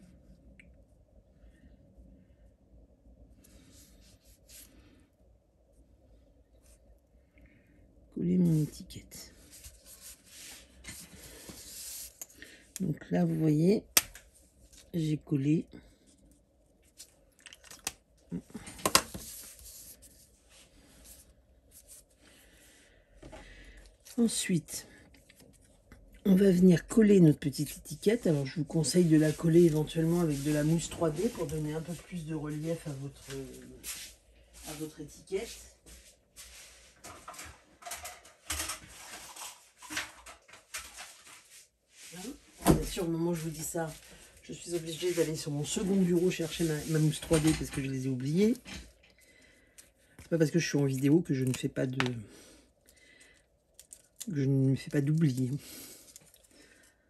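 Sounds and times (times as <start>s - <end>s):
paper sliding rustle: 9.4s - 12.2s, 18.8s - 22.1s.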